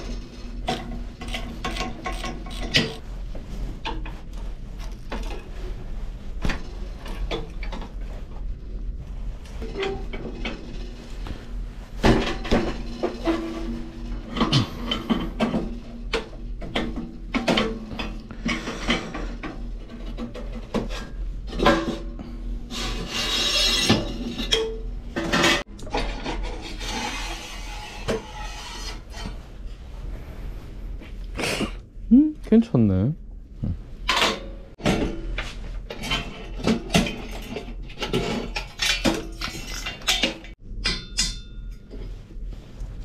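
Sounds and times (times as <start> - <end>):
metal parts and tools clanking: 0.0 - 3.0, 35.9 - 42.2
rasping metal scraping: 22.7 - 24.6, 25.3 - 29.4.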